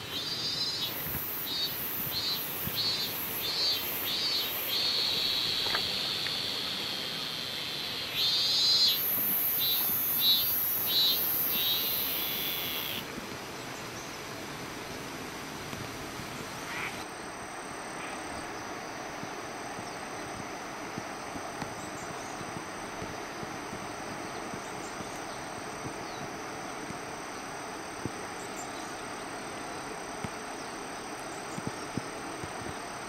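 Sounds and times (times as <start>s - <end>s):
cicadas shrilling: 0.0s - 14.3s, 16.4s - 20.4s
faint outdoor hiss: 0.0s - 33.0s.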